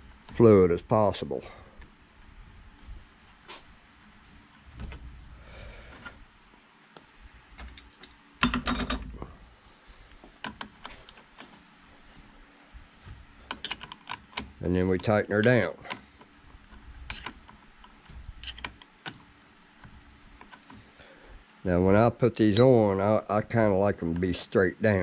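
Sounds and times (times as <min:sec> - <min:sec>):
small metallic clicks and taps: 0:13.5 - 0:20.8.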